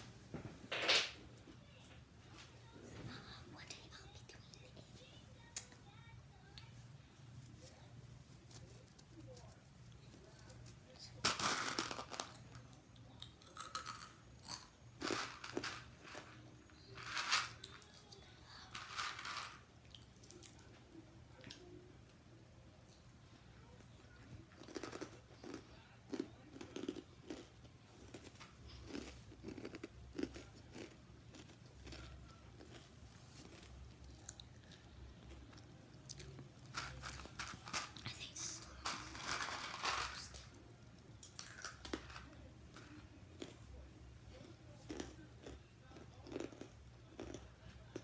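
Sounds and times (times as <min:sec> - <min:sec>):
crunchy food being chewed: 0:08.4 - 0:18.0, 0:24.5 - 0:38.2, 0:41.1 - 0:48.0.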